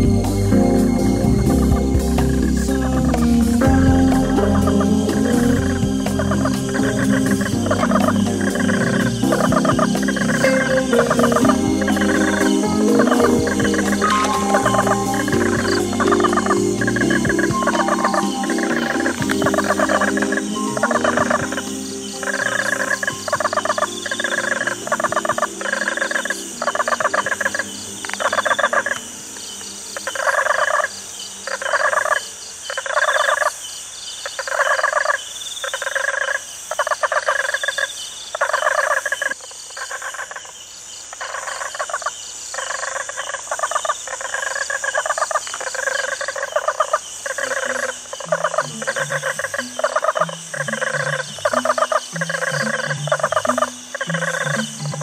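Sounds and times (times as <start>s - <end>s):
low bass notes: 0.0s - 31.1s, 47.5s - 55.0s
high insect-like hiss: 0.0s - 55.0s.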